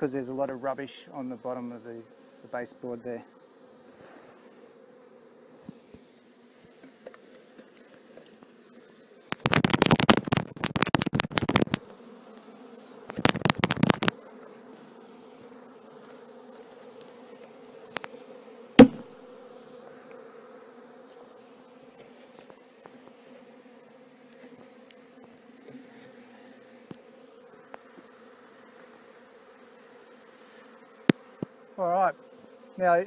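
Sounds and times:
honeybees humming: 0.0 - 33.0
wooden hive box knocking: 9.4 - 11.8, 13.1 - 14.2, 18.8 - 19.1.

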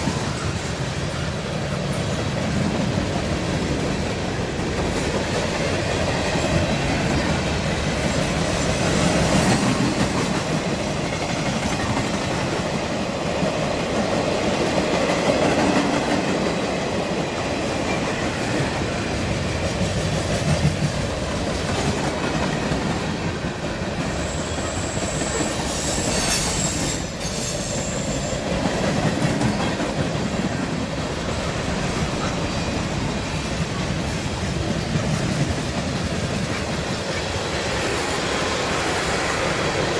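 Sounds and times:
freight train wheels rumbling: 0.0 - 39.9
wheels squealing: 24.0 - 28.5.

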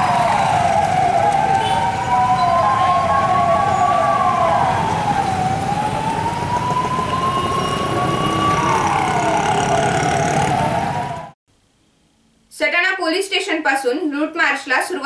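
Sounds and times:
police siren wailing: 0.0 - 11.4
street noise: 0.0 - 11.4.

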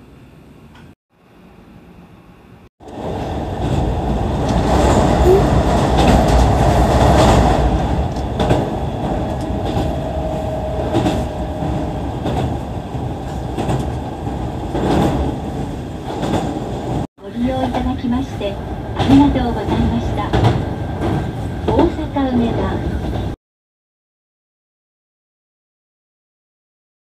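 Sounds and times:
train rumbling: 2.8 - 23.4.

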